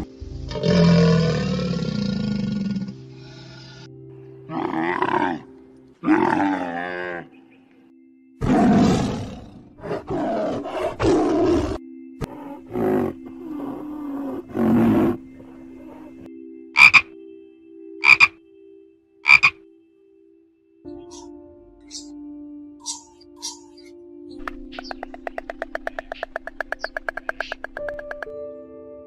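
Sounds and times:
tigers growling and roaring: 0.5s - 3.9s, 4.5s - 7.3s, 8.4s - 16.2s
toad croaking: 16.8s - 17.2s, 18.0s - 18.4s, 19.2s - 19.6s, 24.8s - 28.2s.

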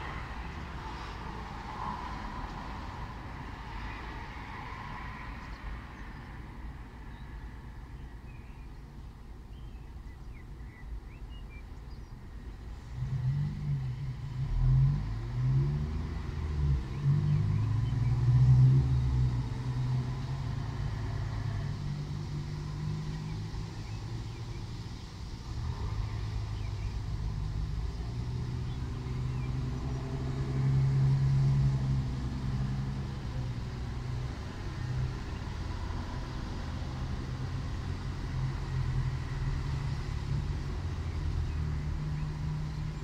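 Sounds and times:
traffic rumble: 0.0s - 43.0s
vehicle engine passing close: 12.8s - 43.0s.

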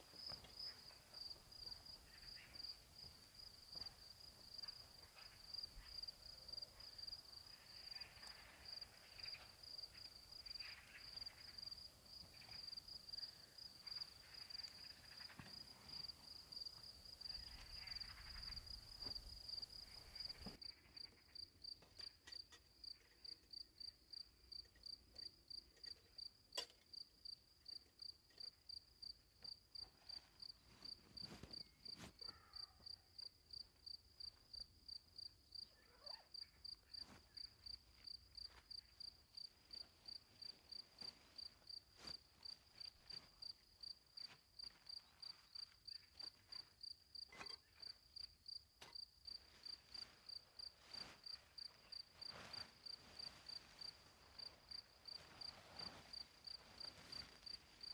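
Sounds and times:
cricket chirping: 0.0s - 57.9s.

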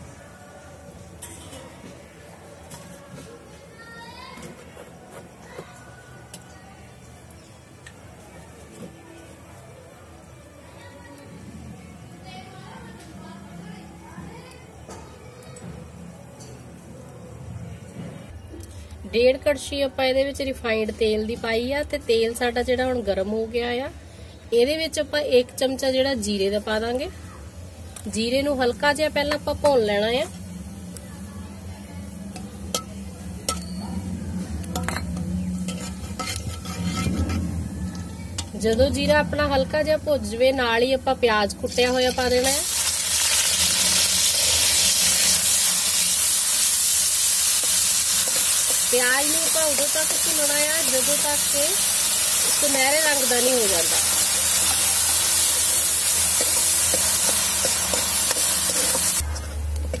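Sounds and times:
ladle scraping seeds in pan: 35.4s - 37.6s, 42.6s - 59.6s
seeds sizzling in oil: 41.0s - 60.0s.

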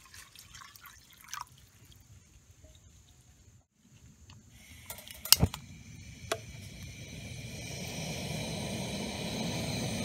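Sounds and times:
camp stove burner hissing: 4.2s - 10.0s.

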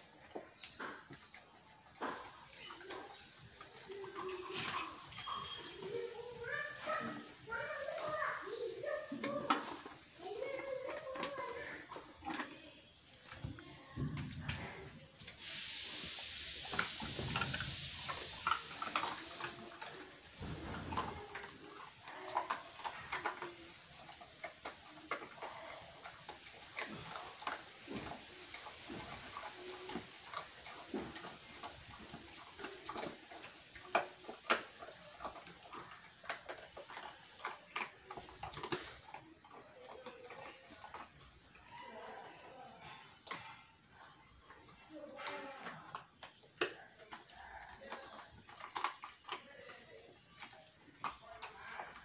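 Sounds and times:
dog crunching bones: 0.0s - 15.4s, 16.1s - 52.0s
steady hiss: 15.2s - 19.8s.

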